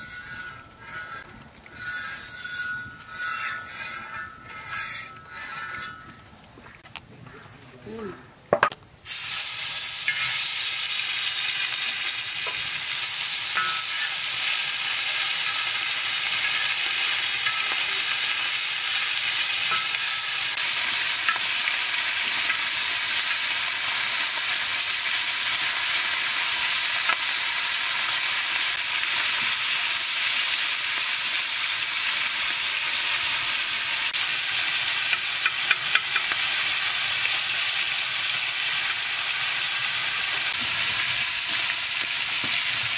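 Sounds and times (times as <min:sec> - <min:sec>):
fish sizzling in hot oil: 0:09.0 - 0:42.9
metal spatula tapping pan: 0:13.6 - 0:14.2, 0:17.4 - 0:17.9, 0:19.6 - 0:20.4, 0:35.1 - 0:36.5.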